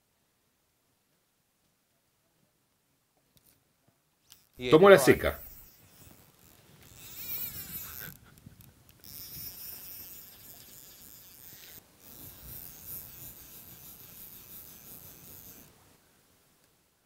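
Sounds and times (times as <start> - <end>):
fishing reel and line rasping: 4.3 - 15.8.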